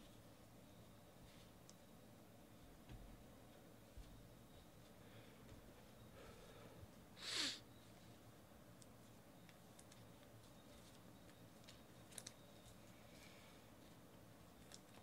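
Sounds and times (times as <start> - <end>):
person sniffing: 7.2 - 7.6.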